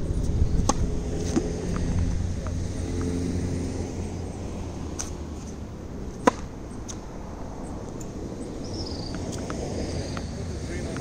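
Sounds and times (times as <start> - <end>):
tennis racket hitting ball: 0.6 - 3.2, 6.2 - 6.5.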